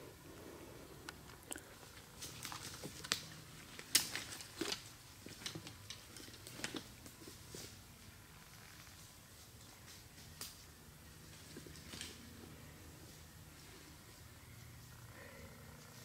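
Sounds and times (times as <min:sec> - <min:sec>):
small crunches and clicks: 0:01.1 - 0:07.3.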